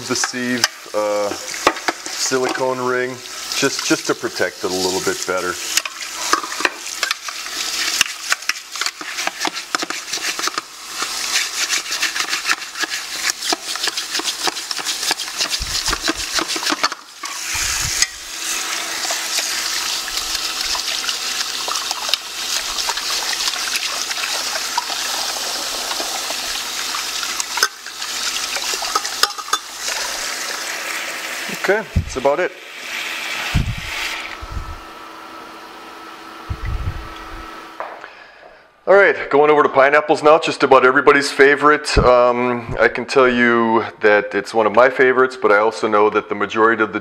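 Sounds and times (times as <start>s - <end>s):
tap water splashing on metal: 25.8s - 30.1s.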